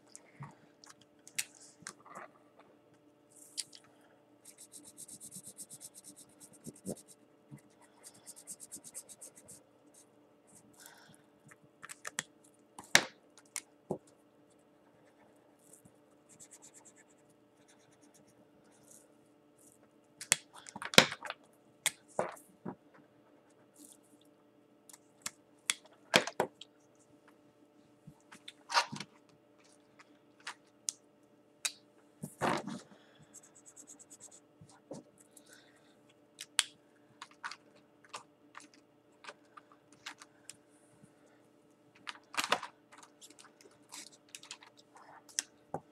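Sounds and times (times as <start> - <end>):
faint steady hum: 0.0 - 45.9
markers scratching on paper: 4.5 - 9.6, 16.3 - 18.3, 33.4 - 34.8.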